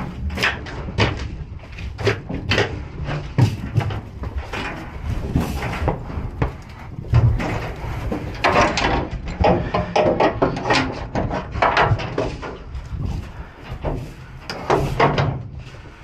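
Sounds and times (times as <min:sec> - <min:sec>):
metal gates clanking and rattling: 0:07.1 - 0:12.7.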